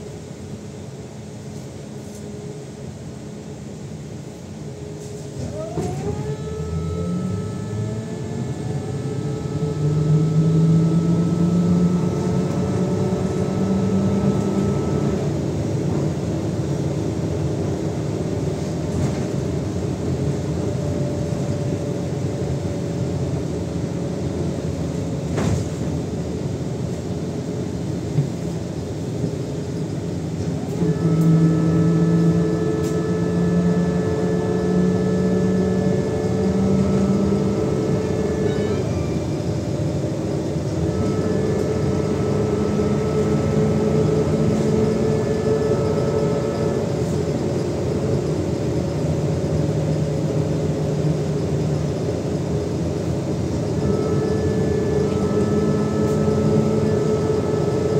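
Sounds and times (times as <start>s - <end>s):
road rumble: 0.0s - 57.9s
electric traction drive humming: 5.5s - 18.4s, 30.3s - 57.9s.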